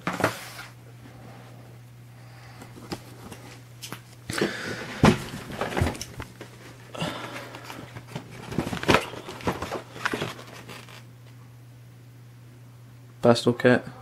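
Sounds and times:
steady low hum: 0.0 - 14.0
cardboard boxes rustling and knocking: 4.4 - 11.0.

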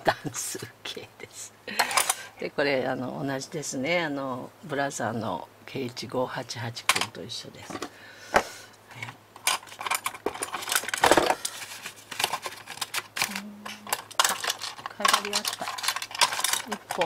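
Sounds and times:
metal parts clicking and tapping: 9.4 - 11.5, 12.1 - 17.0.

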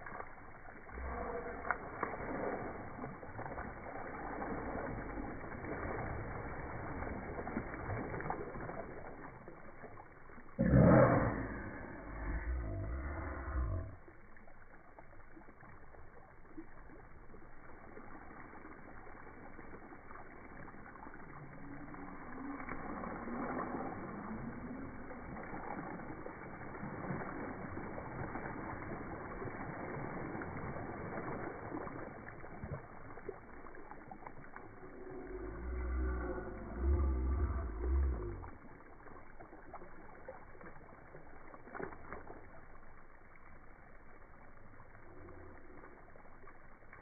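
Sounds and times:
slowed water splashing on slide: 0.0 - 47.0
low drawn-out voice-like sounds: 0.8 - 3.0, 10.6 - 14.2, 34.6 - 38.8.

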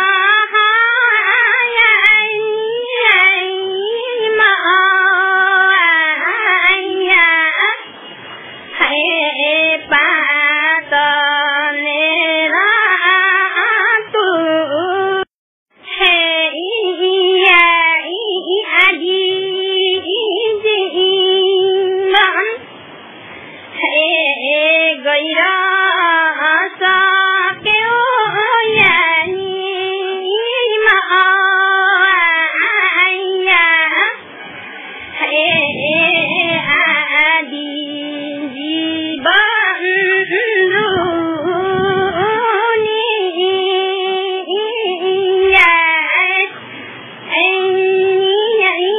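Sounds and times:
high voice singing held notes: 23.4 - 48.9.

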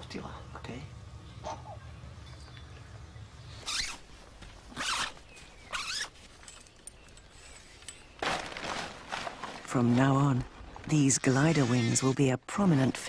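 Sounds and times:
zipper pulled rasping: 3.6 - 4.0, 4.7 - 6.2.

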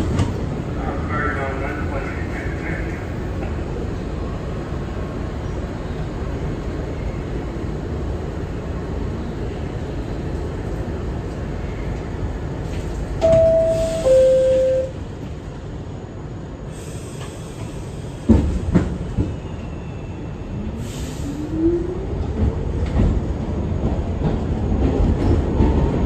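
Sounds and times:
subway car rumble: 0.0 - 26.0
two-tone descending door chime: 13.2 - 15.0.

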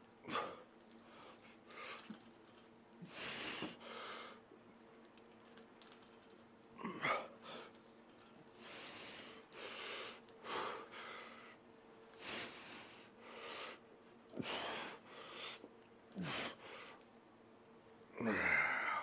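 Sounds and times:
man breathing heavily: 3.0 - 4.4, 8.5 - 17.0, 18.2 - 19.0
man grunting: 18.2 - 19.0.

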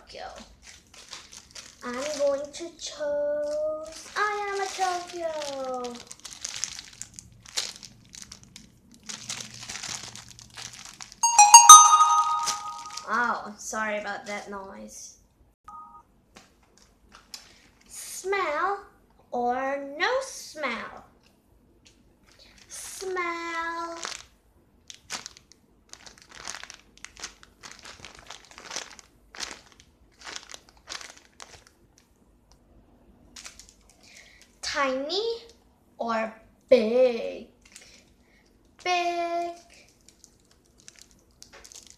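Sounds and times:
plastic bag crinkling: 0.4 - 2.7, 3.4 - 11.2, 23.9 - 24.3, 24.9 - 31.8, 33.4 - 34.6, 39.6 - 41.9
loud ringing held tones: 11.2 - 13.0.

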